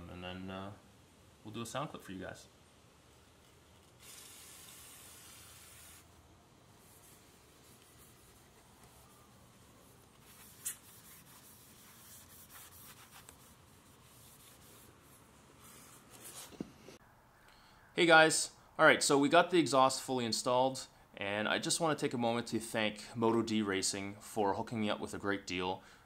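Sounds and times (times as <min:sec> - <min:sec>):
aerosol can spraying: 0:03.8 - 0:06.2.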